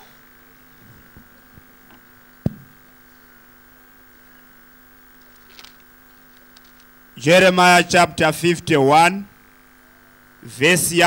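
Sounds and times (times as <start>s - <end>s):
sound system electrical hum: 0.0s - 11.0s
sharp knock: 2.4s - 2.7s.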